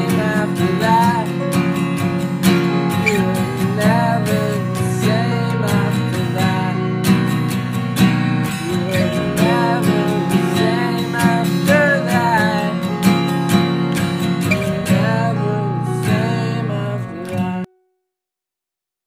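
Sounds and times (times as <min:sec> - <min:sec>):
held synth chords: 0:06.9 - 0:17.0
pitch-bending melodic line: 0:07.8 - 0:17.7.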